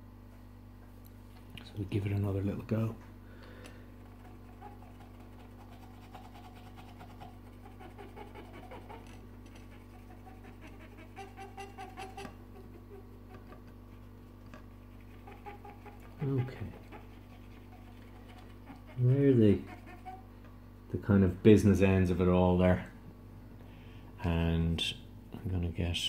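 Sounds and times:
steady low hum: 0:00.0 - 0:26.0
cotton bud scrubbing circuit board: 0:04.0 - 0:20.3.

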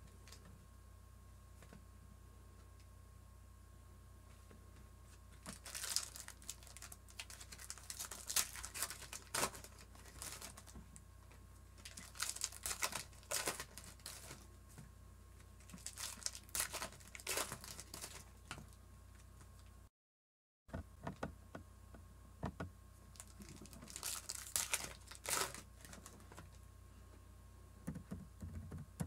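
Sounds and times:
foil wrappers crinkling: 0:05.3 - 0:14.5, 0:15.6 - 0:18.8, 0:23.1 - 0:26.6.

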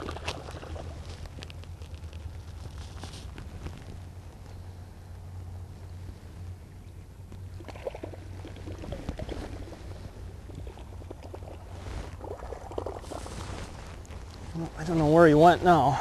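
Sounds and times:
water splashing and gurgling: 0:00.0 - 0:01.2, 0:07.6 - 0:13.8
steady low hum: 0:00.0 - 0:16.0.

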